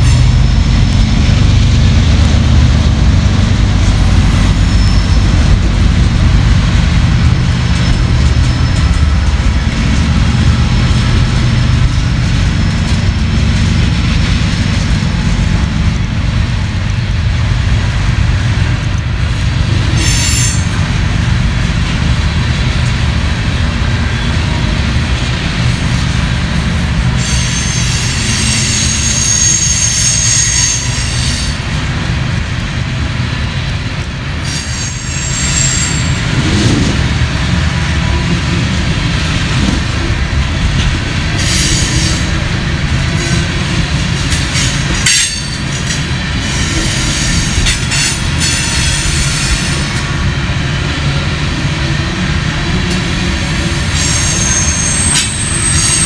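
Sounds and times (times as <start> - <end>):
freight train rumbling past: 0.0 - 56.0
high wheel squeal: 4.5 - 5.4, 27.2 - 31.6, 34.4 - 36.2, 53.8 - 56.0.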